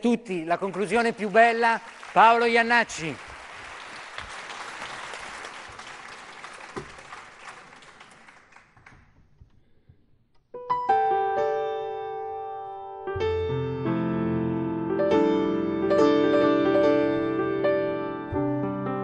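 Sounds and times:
audience applause: 0:00.7 - 0:09.0
grand piano chords: 0:10.5 - 0:19.0.

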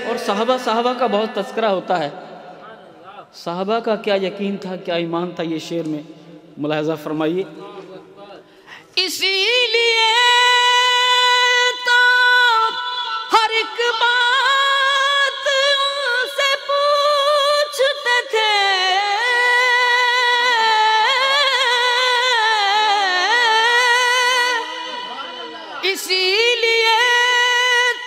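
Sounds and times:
man singing into a microphone: 0:00.0 - 0:02.2, 0:08.7 - 0:28.0.

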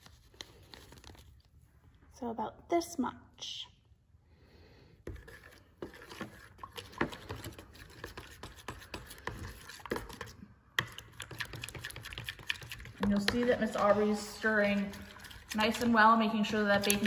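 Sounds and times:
spoon stirring liquid in bowl: 0:05.1 - 0:17.0.

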